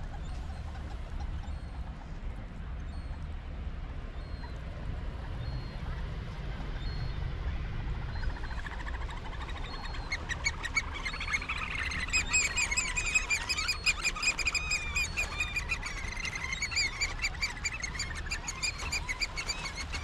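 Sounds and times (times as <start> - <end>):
birds chirping: 8.2 - 20.0.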